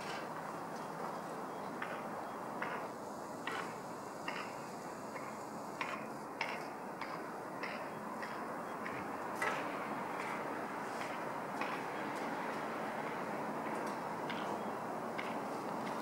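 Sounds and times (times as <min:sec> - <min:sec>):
outdoor background noise: 0:00.0 - 0:16.0.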